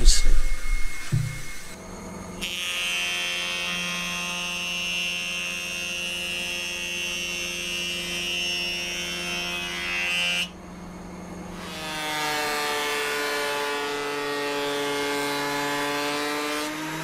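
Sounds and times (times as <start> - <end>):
saw cutting board: 0.0 - 1.8, 11.5 - 17.0
table saw running: 0.0 - 1.8.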